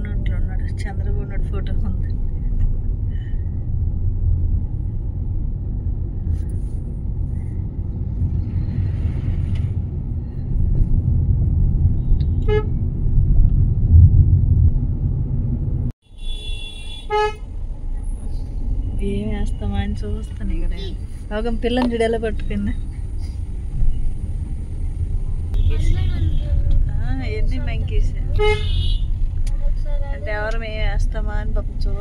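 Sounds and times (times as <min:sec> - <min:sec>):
car interior rumble: 0:00.0 - 0:32.0
vehicle horn tooting: 0:12.2 - 0:12.8, 0:16.1 - 0:17.4, 0:25.6 - 0:26.6, 0:28.3 - 0:29.1.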